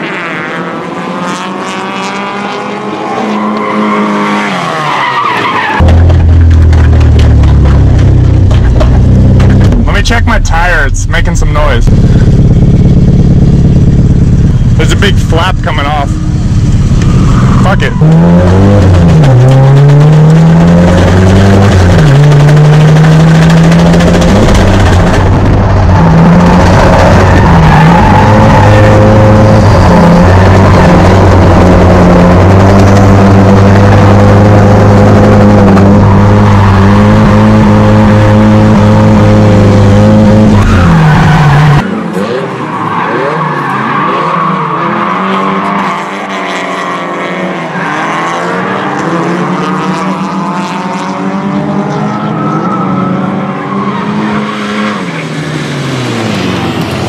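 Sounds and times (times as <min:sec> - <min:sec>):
car engine at high revs: 0:00.0 - 0:57.0
drift car engines revving: 0:00.0 - 0:57.0
tyre squeal: 0:25.8 - 0:38.7.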